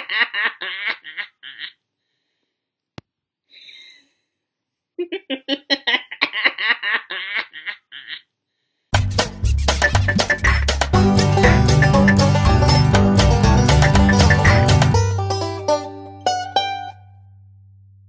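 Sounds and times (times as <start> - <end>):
woman laughing villainously: 0.0 - 1.8, 5.0 - 8.3
breath: 2.0 - 2.7, 3.5 - 4.6, 8.5 - 8.9
music: 9.0 - 17.6.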